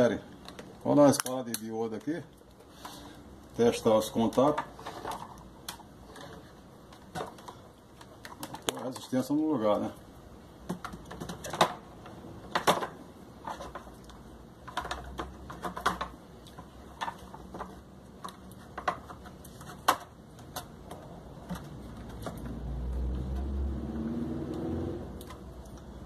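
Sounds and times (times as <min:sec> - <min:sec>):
plastic parts clicking and knocking: 0:04.1 - 0:09.1, 0:10.6 - 0:22.6.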